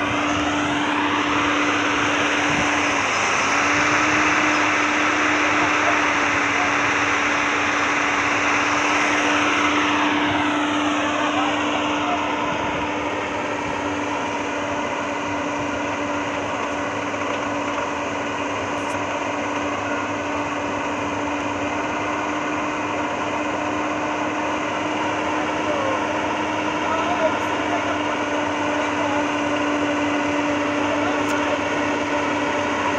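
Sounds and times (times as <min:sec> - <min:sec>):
excavator engine and hydraulics droning: 0:00.0 - 0:32.9.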